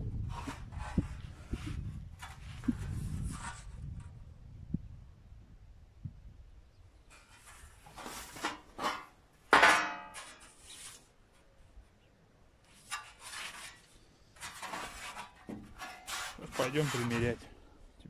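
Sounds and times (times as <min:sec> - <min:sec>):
sheet metal scraping: 0:00.2 - 0:03.8, 0:07.1 - 0:11.1, 0:12.7 - 0:17.6.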